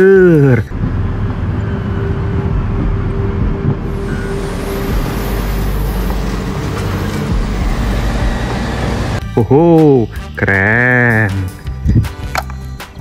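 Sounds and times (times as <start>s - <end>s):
held tone: 0.0s - 9.2s
diesel engine droning: 0.0s - 11.8s.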